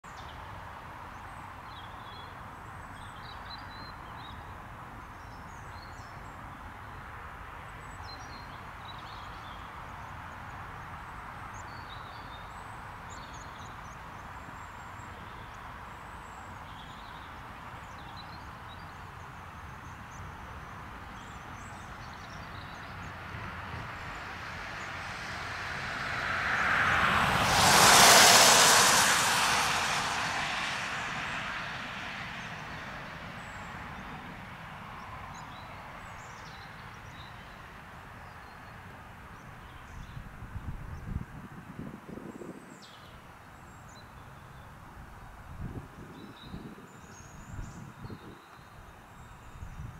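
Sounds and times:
jet engine hiss: 27.2s - 31.6s.

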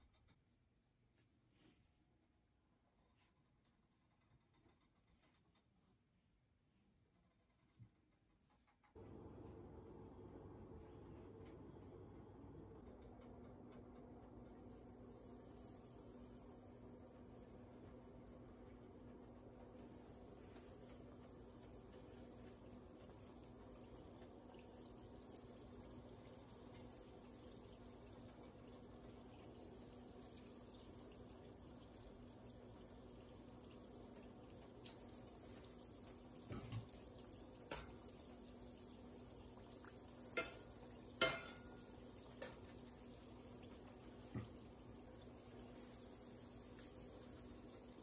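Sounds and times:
oil sizzling: 14.6s - 48.0s
sharp pops in frying oil: 19.8s - 44.9s.

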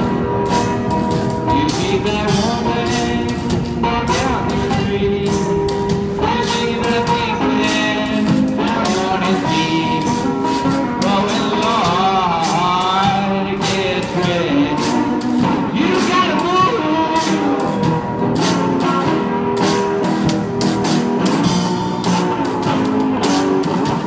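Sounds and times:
acoustic guitar strummed: 0.0s - 24.0s
man singing: 1.3s - 18.0s.

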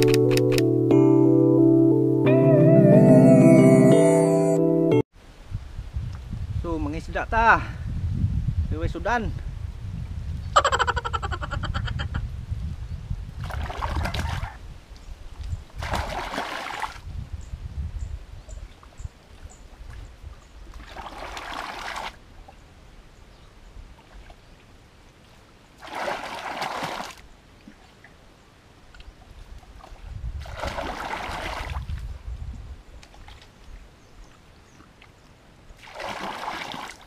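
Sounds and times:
water splashing from bucket: 13.4s - 14.6s, 15.8s - 17.0s, 20.7s - 22.2s, 25.8s - 27.2s, 29.8s - 32.0s, 35.8s - 37.0s.

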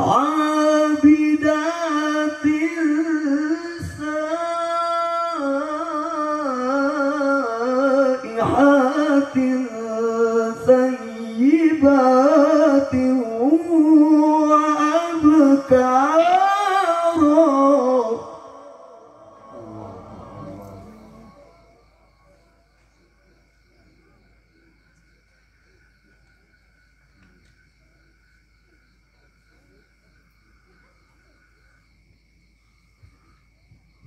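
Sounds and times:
man chanting over loudspeakers: 0.0s - 24.9s.

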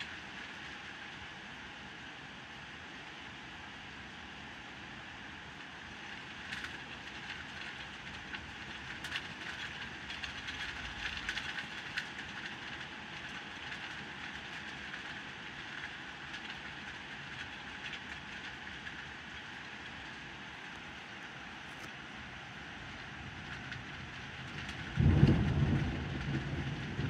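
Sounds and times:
close patter of raindrops: 0.0s - 27.0s
heavy rain pouring: 5.4s - 27.0s.

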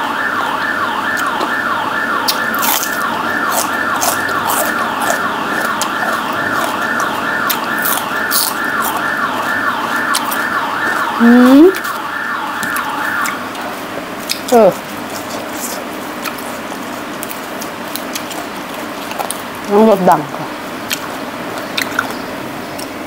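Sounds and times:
emergency vehicle siren wailing: 0.0s - 14.9s.

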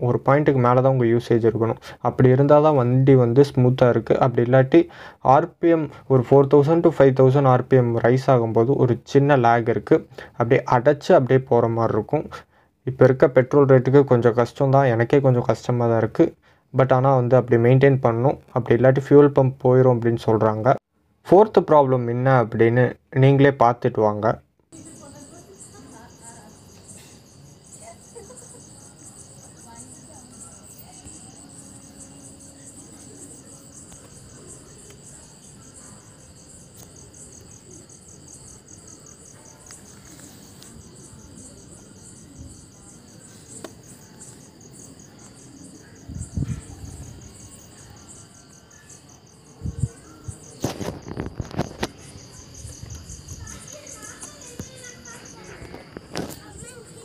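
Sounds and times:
crickets chirring: 0.0s - 20.8s, 21.9s - 57.0s.

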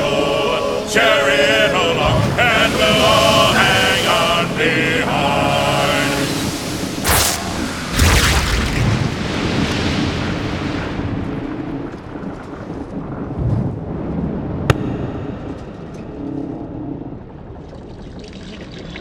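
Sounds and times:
low rumbling ambient noise: 0.0s - 11.2s, 13.9s - 17.9s.

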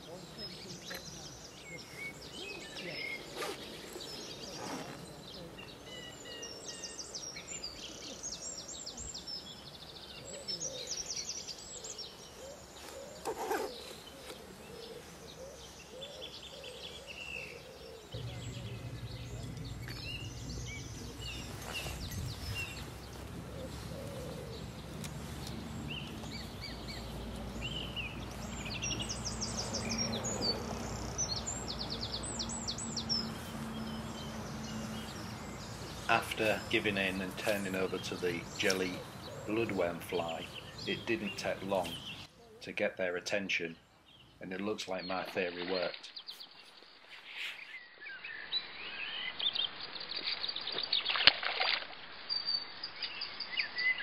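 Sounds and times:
songbirds chirping: 0.0s - 54.0s
low steady hum: 18.1s - 37.5s.

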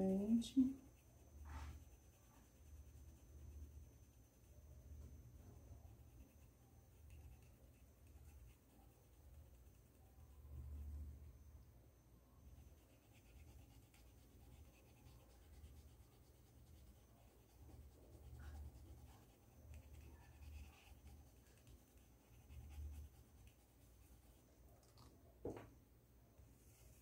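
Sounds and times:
paintbrush scratching on fabric: 0.8s - 4.1s, 5.9s - 10.0s, 12.5s - 24.5s, 26.6s - 27.0s
soft low bumps on table: 25.4s - 25.8s.

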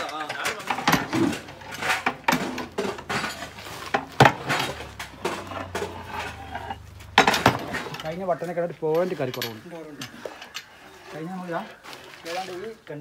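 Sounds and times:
paddle scraping metal pot: 0.0s - 12.9s.

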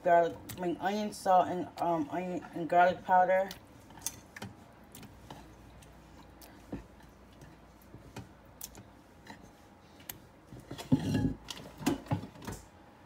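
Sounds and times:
knock and handling noise: 10.5s - 12.6s.

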